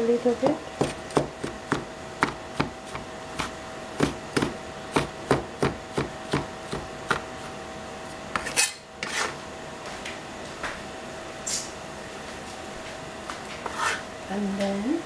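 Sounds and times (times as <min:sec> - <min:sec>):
cleaver chopping on plastic board: 0:00.8 - 0:07.3.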